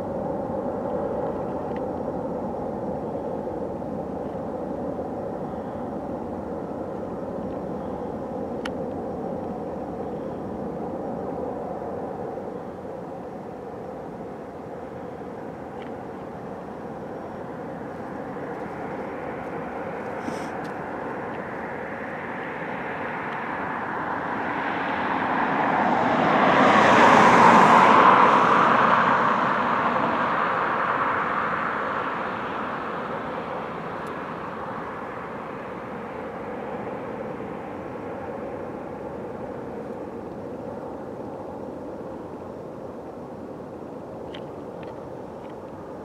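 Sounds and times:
airplane passing overhead: 0:00.0 - 0:46.0.

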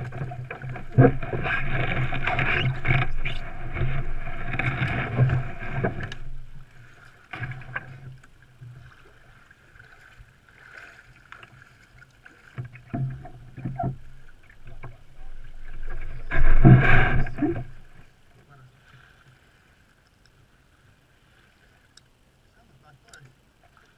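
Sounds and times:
kayak hull scraping over gravel: 0:00.0 - 0:08.2, 0:08.9 - 0:18.1.

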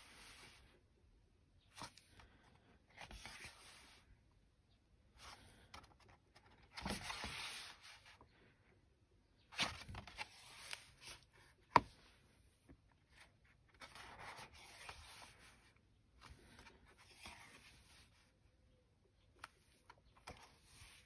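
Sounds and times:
paper pages rustling: 0:03.0 - 0:04.0, 0:05.2 - 0:08.1.

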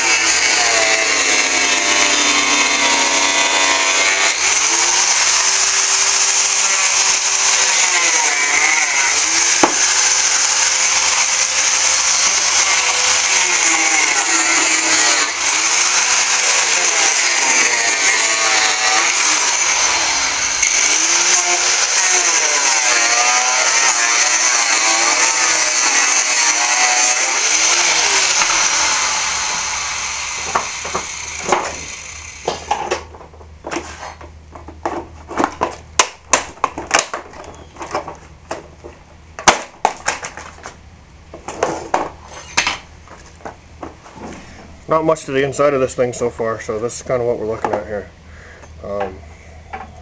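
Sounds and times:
angle grinder cutting plastic: 0:00.0 - 0:34.2, 0:34.9 - 0:38.6, 0:41.4 - 0:42.9
plastic knocks and clatters: 0:32.5 - 0:44.0.

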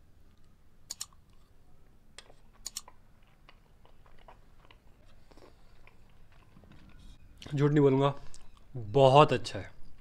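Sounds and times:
sharp clicks: 0:00.9 - 0:01.2, 0:02.6 - 0:02.9
faint chewing: 0:02.2 - 0:07.5.

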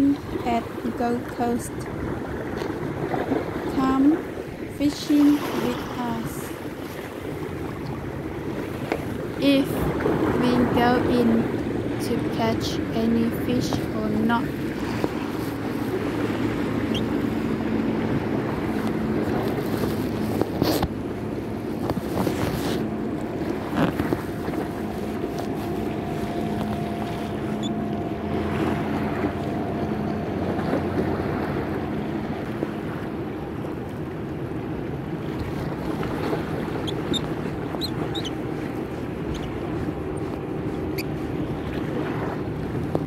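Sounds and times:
wind noise on microphone: 0:00.0 - 0:33.6
motorboat engine humming: 0:00.0 - 0:43.0
sea wash: 0:00.0 - 0:43.0.

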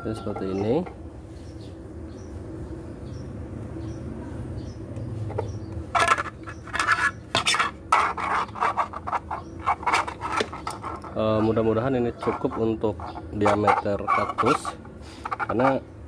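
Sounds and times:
plastic parts scraping and clicking: 0:05.3 - 0:11.5, 0:12.2 - 0:15.8.

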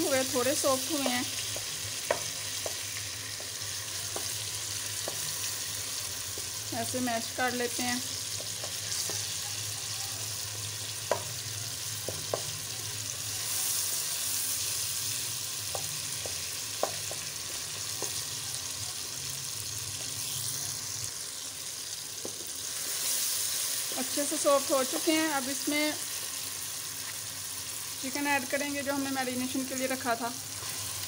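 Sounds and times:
tomatoes sizzling in hot oil: 0:00.0 - 0:31.0
spatula knocking against pan: 0:05.0 - 0:05.3, 0:11.0 - 0:11.4, 0:12.0 - 0:12.5, 0:15.7 - 0:17.3.

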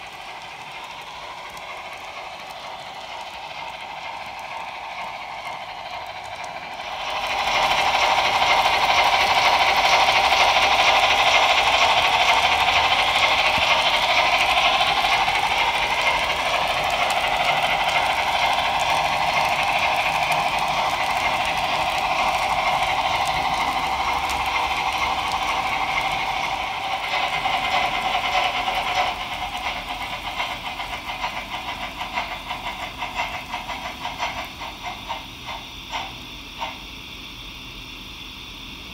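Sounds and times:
model train wheels rattling on track: 0:00.0 - 0:36.9.

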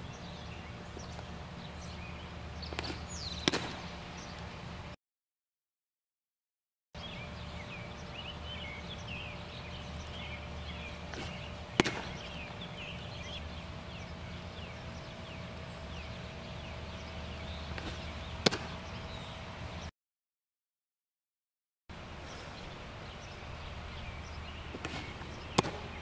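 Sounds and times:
birds chirping: 0:00.0 - 0:05.0, 0:07.0 - 0:19.9, 0:21.9 - 0:26.0
faint steady hum: 0:00.0 - 0:05.0, 0:07.0 - 0:19.9, 0:21.9 - 0:26.0
baseball smacking into mitt: 0:02.7 - 0:04.0, 0:11.1 - 0:12.5, 0:17.7 - 0:18.8, 0:24.7 - 0:26.0.

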